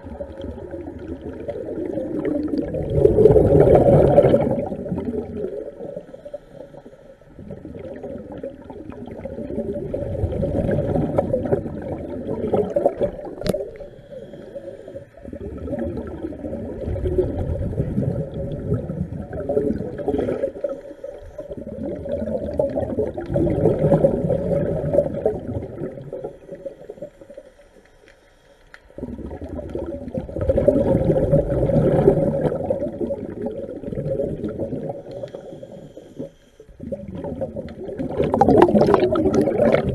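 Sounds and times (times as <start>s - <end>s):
bubbling exhalations: 0.0s - 6.3s, 7.4s - 27.2s, 29.0s - 35.8s, 36.8s - 39.9s
diver breathing underwater: 2.5s - 7.9s, 10.0s - 22.8s, 34.0s - 39.9s.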